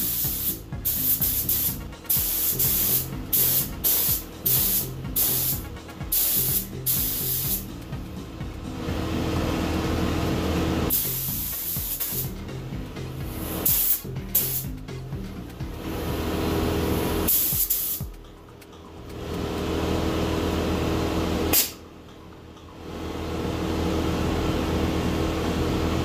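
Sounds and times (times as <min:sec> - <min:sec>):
spray gun hissing: 0:00.0 - 0:07.6, 0:10.9 - 0:12.3, 0:13.4 - 0:14.7, 0:17.3 - 0:18.0.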